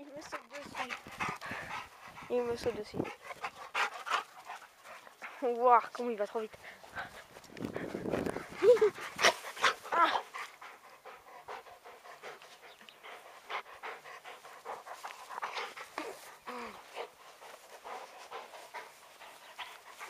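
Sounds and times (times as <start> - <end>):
dog panting: 0.0 - 20.0.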